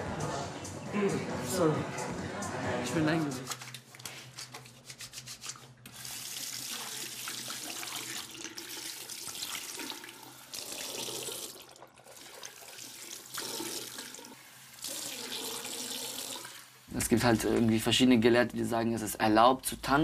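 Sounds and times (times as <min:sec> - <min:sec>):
tap water running into sink: 0:05.8 - 0:17.7.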